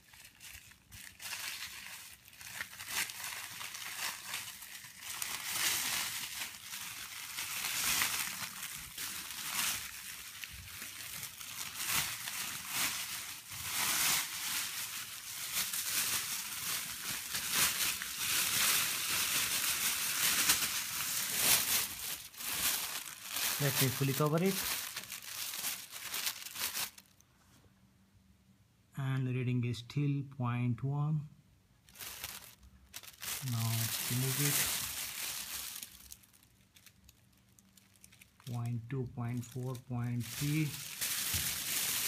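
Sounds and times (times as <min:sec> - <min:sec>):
foil blanket crinkling: 0:00.0 - 0:27.2, 0:31.9 - 0:38.6, 0:39.3 - 0:42.0.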